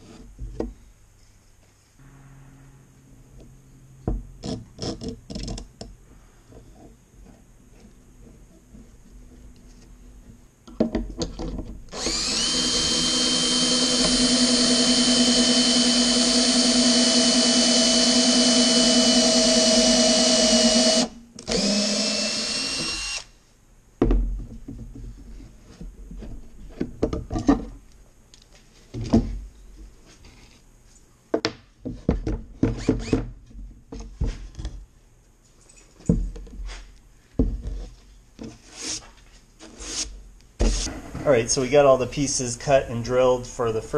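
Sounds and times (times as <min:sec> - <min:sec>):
power drill boring into wood: 0:11.9 - 0:23.3
knocks and clatter of wood: 0:24.0 - 0:27.8, 0:28.9 - 0:29.4.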